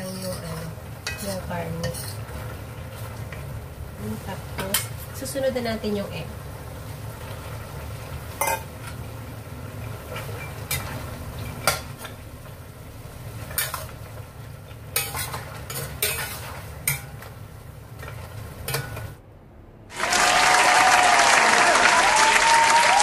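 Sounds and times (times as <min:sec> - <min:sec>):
metal spatula scraping wok: 0:00.0 - 0:05.4, 0:07.2 - 0:09.1, 0:09.8 - 0:12.6, 0:13.2 - 0:19.2.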